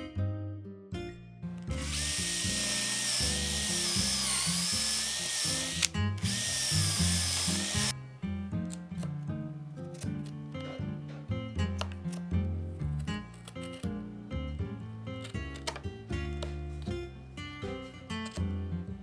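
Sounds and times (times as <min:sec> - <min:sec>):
background music: 0:00.0 - 0:19.0
electric drill boring into wood: 0:01.7 - 0:07.9.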